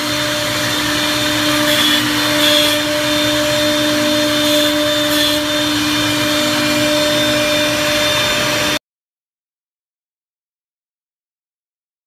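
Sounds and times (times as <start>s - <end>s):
router spindles humming: 0.0s - 8.8s.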